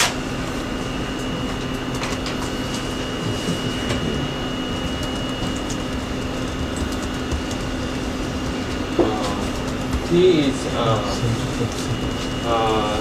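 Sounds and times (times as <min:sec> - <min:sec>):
room hum: 0:00.0 - 0:13.0
faint high whine: 0:00.1 - 0:13.0.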